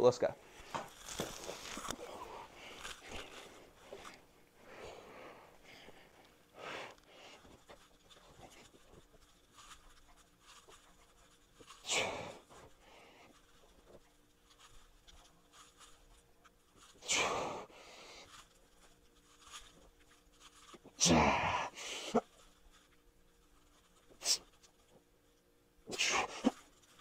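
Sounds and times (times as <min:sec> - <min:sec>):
man breathing forcefully: 0:17.0 - 0:18.3.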